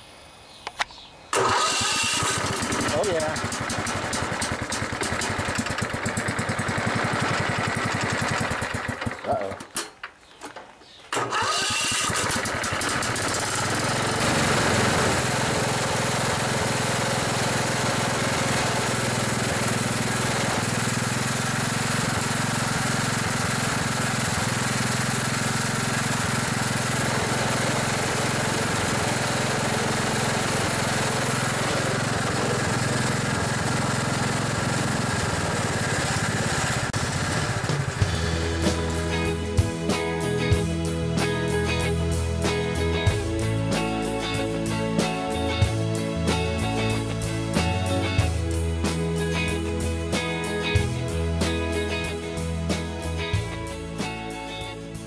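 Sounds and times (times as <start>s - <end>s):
riding mower engine running: 1.3s - 9.8s, 11.1s - 55.0s.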